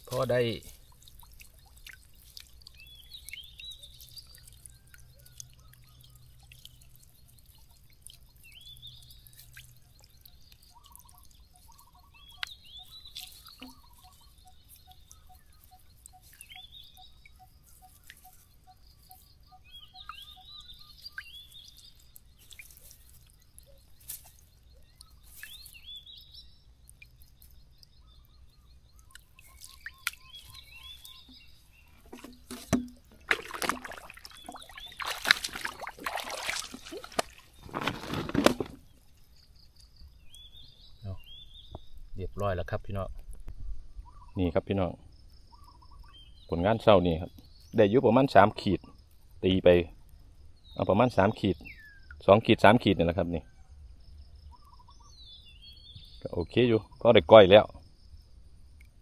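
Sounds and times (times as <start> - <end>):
water dripping: 0.0 - 37.9, 58.7 - 59.0.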